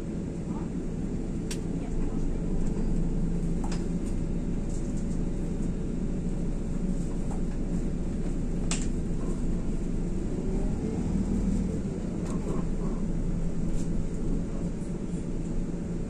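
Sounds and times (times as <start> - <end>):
bus engine drone: 0.0 - 16.0.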